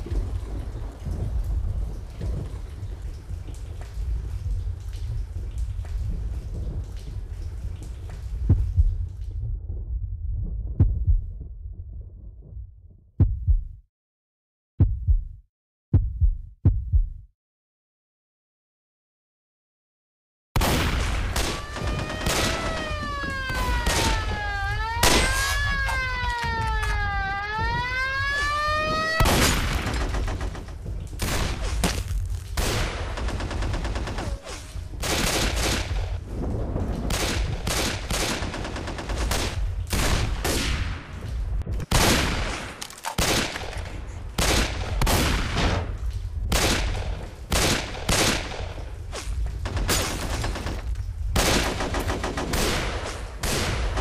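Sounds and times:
siren wailing: 21.4 - 29.3
rapid gunfire: 32.6 - 36.2, 37.1 - 40.7, 49.6 - 54.0.

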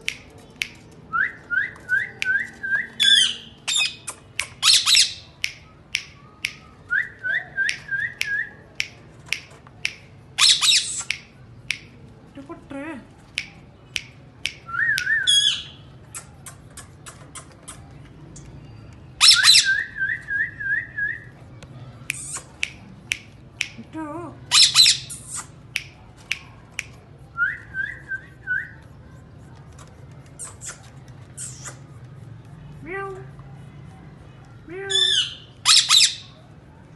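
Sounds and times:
parakeets screeching: 3.0 - 5.3, 10.4 - 11.1, 19.2 - 19.8, 24.5 - 25.6, 31.4 - 31.8, 34.9 - 36.3.

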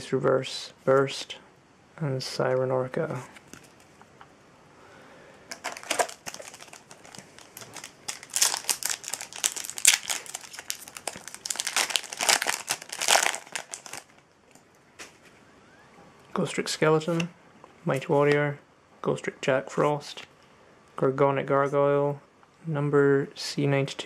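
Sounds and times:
foil wrapper tearing and crinkling: 5.5 - 14.2.

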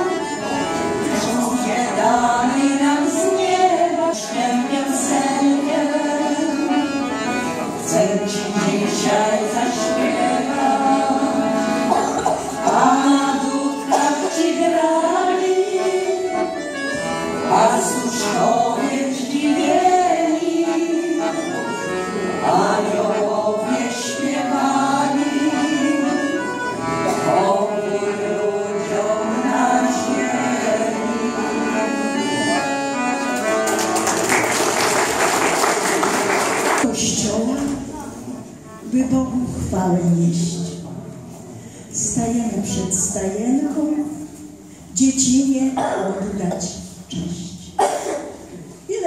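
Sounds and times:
women singing a carol: 0.0 - 16.6, 17.4 - 32.6
piano accordion chords: 0.0 - 36.9, 38.2 - 39.8.

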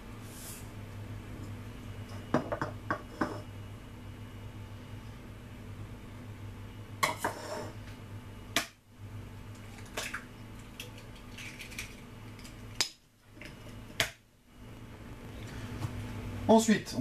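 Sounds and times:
eggs tapping on glass bowl: 2.3 - 3.3.

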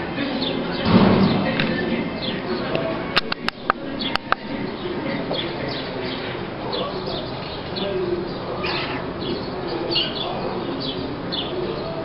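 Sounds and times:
small birds chirping: 0.2 - 12.0
low cooing: 8.1 - 9.3.

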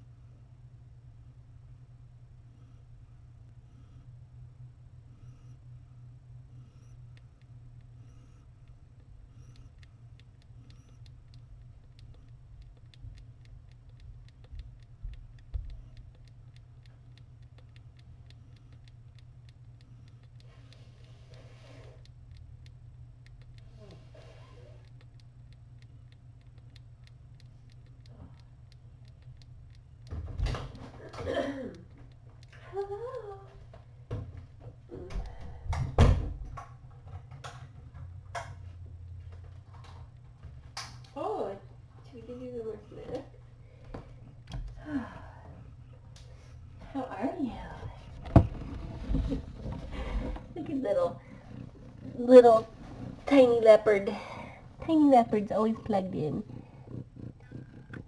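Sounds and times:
steady low hum: 0.0 - 58.0
faint uneven clicking: 6.9 - 35.9.

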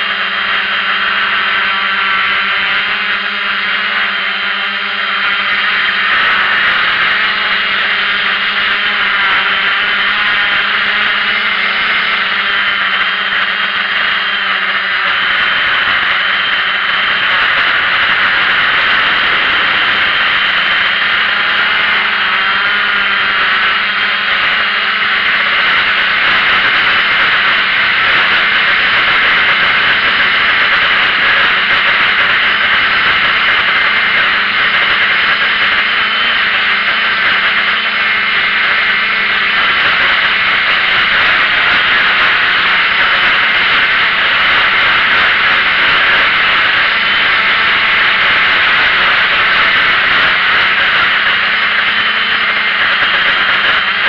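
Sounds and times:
drone propellers whining: 0.0 - 54.0.

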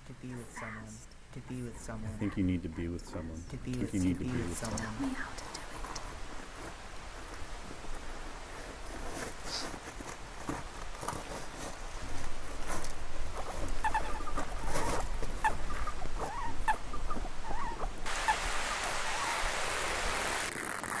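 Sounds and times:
guinea pig squeaking: 13.8 - 17.9
river water churning with ice: 18.0 - 21.0.

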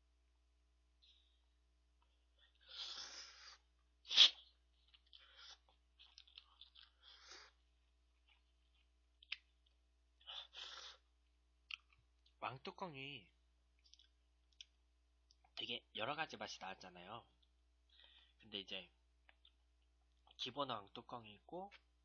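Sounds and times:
person slurping noodles: 2.6 - 4.5
chewing: 4.2 - 9.8.

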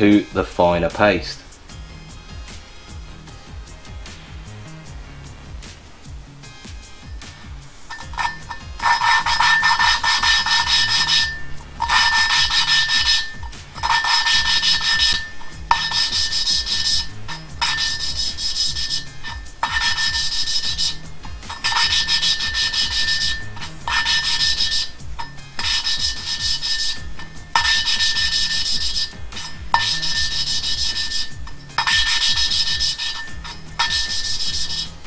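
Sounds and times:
gritty grinding of valve lapping: 7.9 - 35.0.

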